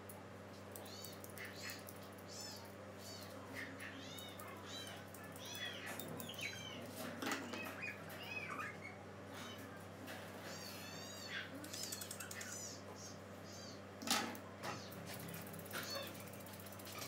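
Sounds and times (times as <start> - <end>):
steady low hum: 0.0 - 17.0
pet making high wavering calls: 0.8 - 9.6, 10.4 - 12.8, 15.7 - 16.4.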